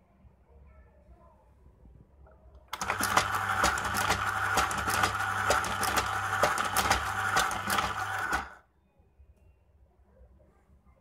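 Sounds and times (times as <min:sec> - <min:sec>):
tape dispenser motor hum: 0:02.7 - 0:08.6
tape dispenser cutting click: 0:02.8 - 0:08.6.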